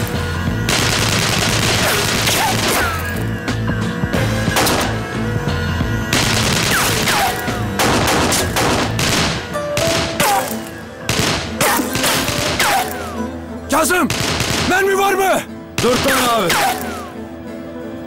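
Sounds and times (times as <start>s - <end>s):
tense background music: 0.0s - 18.0s
pistol shots: 0.7s - 3.2s, 4.5s - 5.0s, 6.1s - 13.0s, 14.1s - 14.8s, 15.8s - 17.0s.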